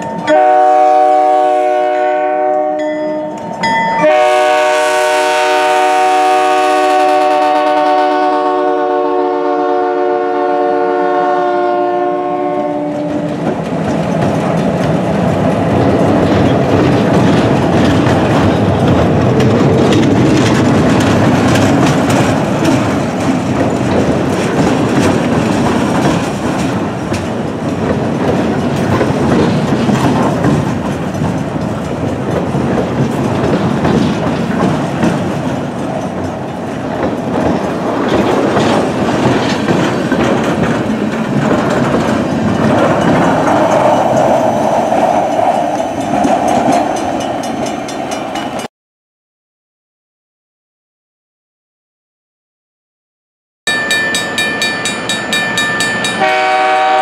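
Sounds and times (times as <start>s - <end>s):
locomotive horn chord: 0.2s - 3.4s, 4.0s - 13.4s, 56.2s - 57.0s
train wheels clattering on rails: 12.8s - 48.7s, 53.7s - 57.0s.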